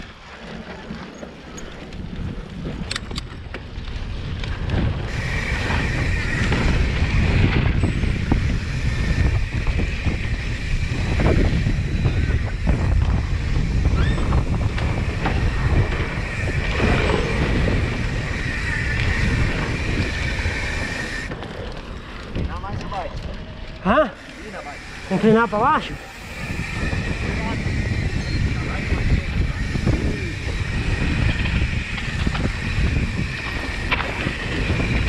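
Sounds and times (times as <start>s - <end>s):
bike tyres rumbling on dirt: 0.0s - 25.3s, 26.0s - 35.0s
wind buffeting microphone: 0.0s - 35.0s
steady high whine: 5.1s - 35.0s.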